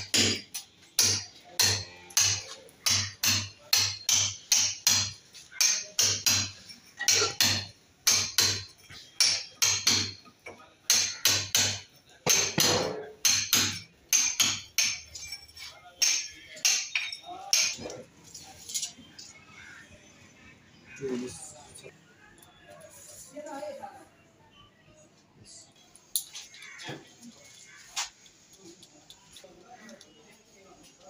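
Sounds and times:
hammer striking steel chisel: 0.0 - 10.2, 10.9 - 15.4, 16.0 - 17.9.

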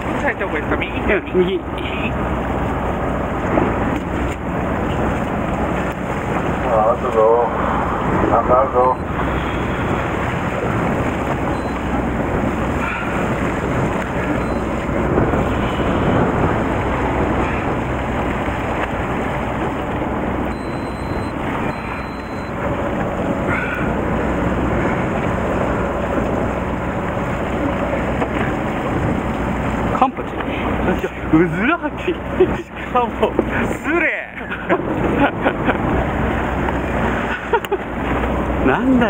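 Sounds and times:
boat engine running: 0.0 - 39.0
sea wash against boat: 0.0 - 39.0
wind on microphone: 7.5 - 21.9, 22.5 - 29.9.

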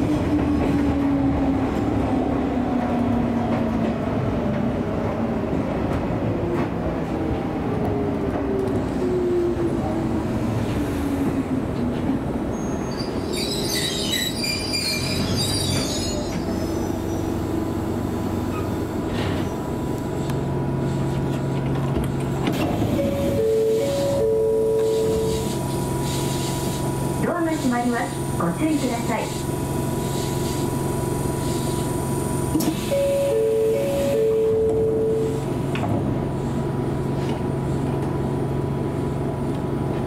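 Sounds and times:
train wheel squeal: 12.5 - 17.4
train motor whine: 12.6 - 27.4, 29.3 - 38.2.

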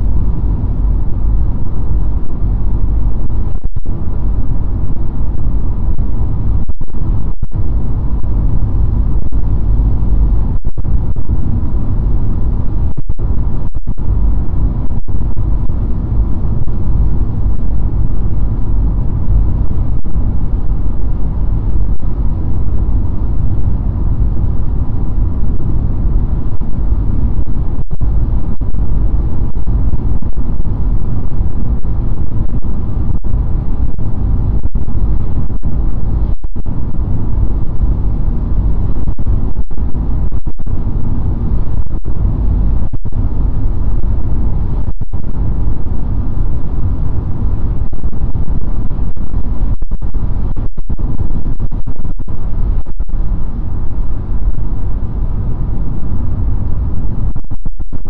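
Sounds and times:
car road and wind noise: 0.0 - 58.0.

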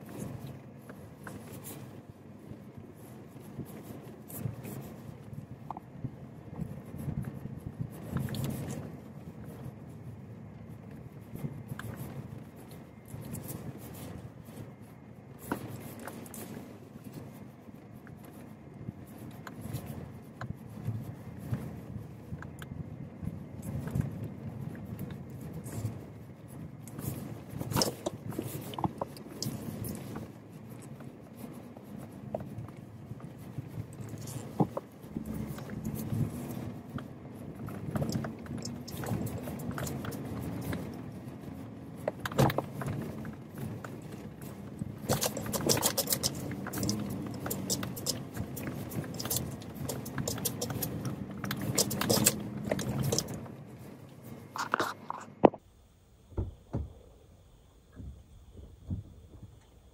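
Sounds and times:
low engine hum: 0.0 - 59.9.

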